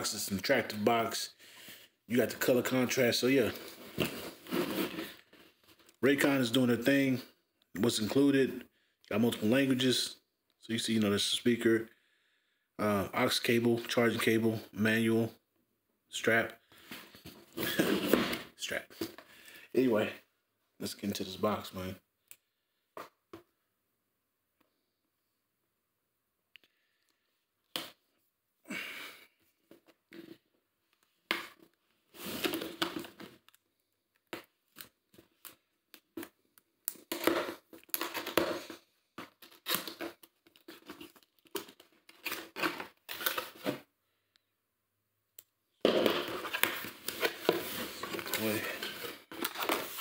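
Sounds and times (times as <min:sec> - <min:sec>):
cardboard scraping: 0:03.5 - 0:05.2, 0:45.9 - 0:50.0.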